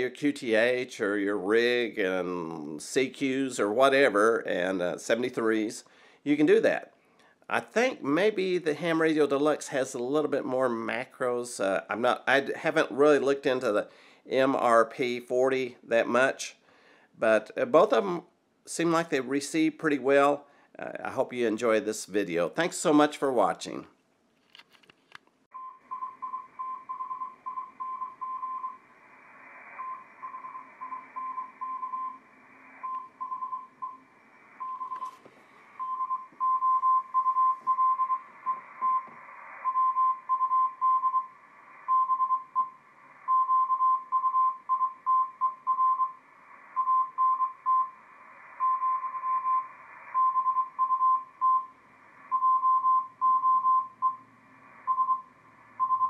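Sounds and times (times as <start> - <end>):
morse code tone: 25.6 - 28.8, 29.8 - 32.2, 32.8 - 34.0, 34.6 - 35.2, 35.8 - 39.1, 39.7 - 46.2, 48.6 - 51.7, 52.3 - 54.3, 54.9 - 56.0
radio band hiss: 28.6 - 35.9, 37.9 - 43.7, 45.6 - 53.1, 53.8 - 55.8.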